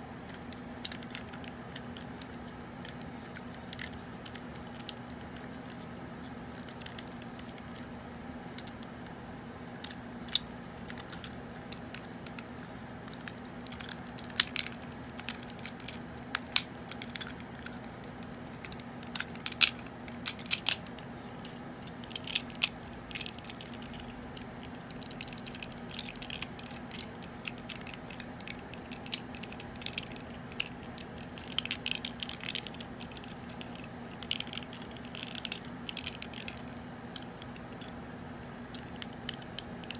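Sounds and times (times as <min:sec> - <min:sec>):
plastic toy clicks and snaps: 0:13.1 - 0:20.9, 0:22.0 - 0:37.9.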